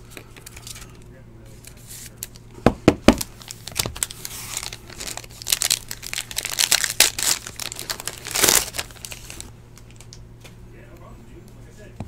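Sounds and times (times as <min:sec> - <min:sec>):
foil wrapper crinkling: 0:03.1 - 0:10.1.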